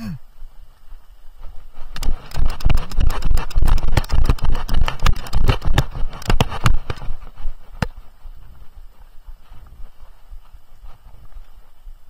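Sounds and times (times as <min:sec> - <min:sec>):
horse hooves on dirt: 0:00.4 - 0:12.0.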